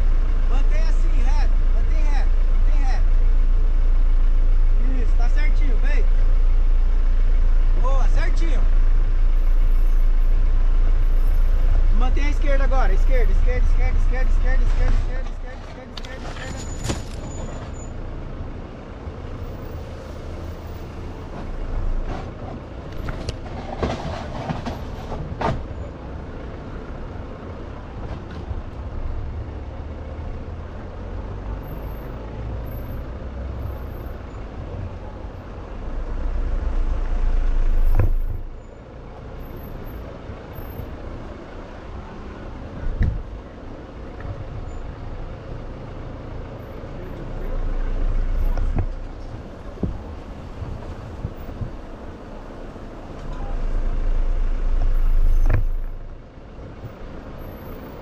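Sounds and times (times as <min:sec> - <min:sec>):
engine and tyre rumble: 0:00.0 - 0:58.0
knocks from rough ground: 0:16.0 - 0:17.8, 0:21.4 - 0:25.8, 0:37.7 - 0:38.4, 0:55.2 - 0:56.0.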